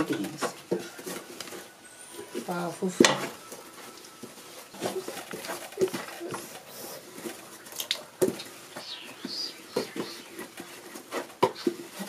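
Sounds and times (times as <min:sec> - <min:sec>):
wooden spatula stirring thick dough: 0:03.1 - 0:12.0.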